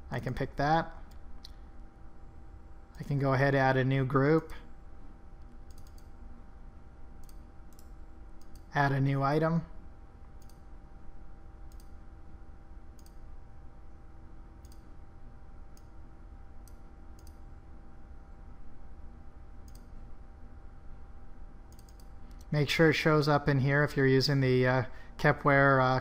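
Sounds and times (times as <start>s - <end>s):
low steady hum: 0.0s - 26.0s
computer mouse clicking: 5.4s - 6.2s, 7.2s - 8.7s, 10.4s - 10.7s, 11.7s - 12.0s, 13.0s - 13.2s, 14.6s - 14.9s, 16.6s - 17.4s, 19.6s - 19.9s, 21.7s - 22.5s.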